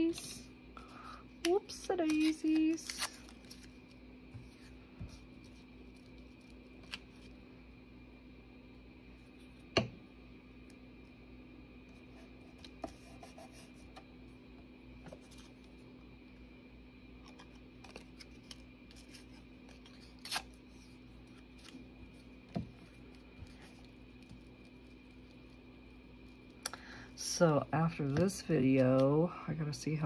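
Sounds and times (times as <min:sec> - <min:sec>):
faint steady hum: 0:00.0 - 0:30.0
paper rustling: 0:02.1 - 0:07.4.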